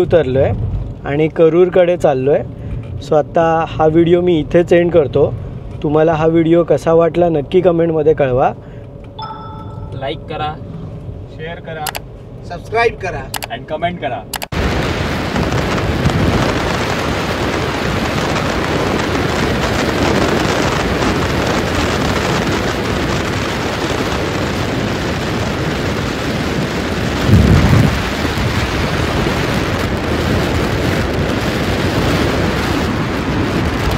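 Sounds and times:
thunder boom: 14.6 - 22.5, 24.7 - 33.9.

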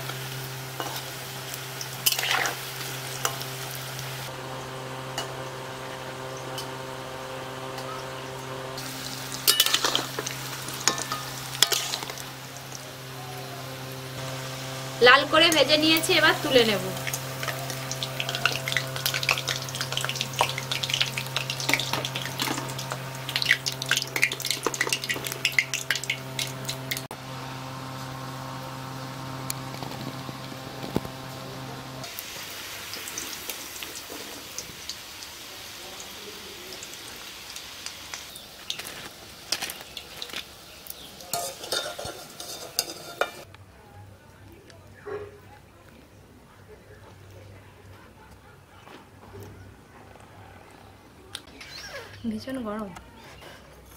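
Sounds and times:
deep-frying sizzling and crackling: 0.0 - 43.6
steady low hum: 2.7 - 32.1
wire skimmer clinking on metal: 9.3 - 12.2, 41.0 - 43.4.

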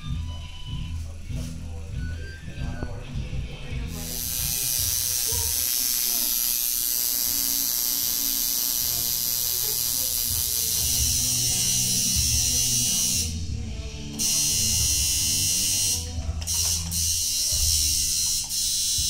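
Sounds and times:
tattoo machine buzzing: 3.9 - 13.5, 14.1 - 19.0.

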